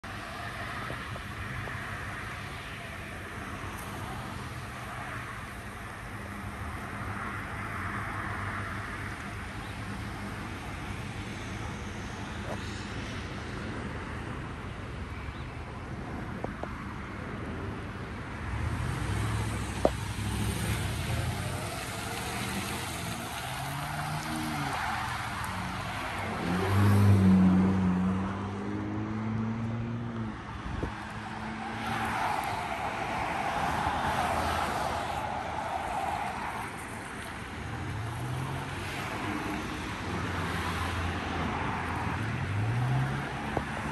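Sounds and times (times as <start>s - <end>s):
cars passing: 0.0s - 43.9s
traffic hiss: 18.8s - 26.8s.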